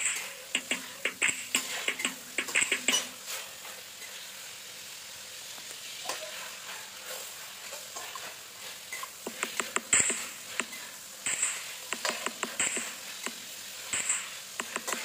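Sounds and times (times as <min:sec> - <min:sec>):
chicken sizzling in a pan: 0:00.0 - 0:15.0.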